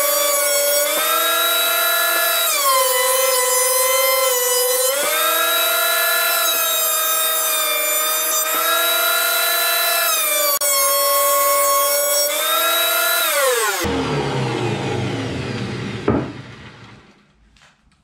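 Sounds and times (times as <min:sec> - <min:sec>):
thickness planer motor whine: 0:00.0 - 0:17.2.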